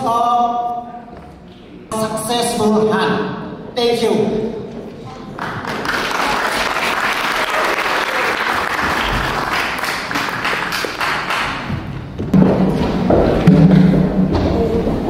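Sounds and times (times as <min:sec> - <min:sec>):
audience applauding: 0:05.4 - 0:11.8.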